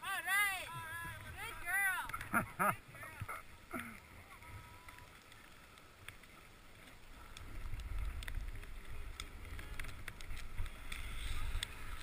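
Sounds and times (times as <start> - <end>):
skis sliding over snow: 0.0 - 12.0
faint clicks: 3.2 - 12.0.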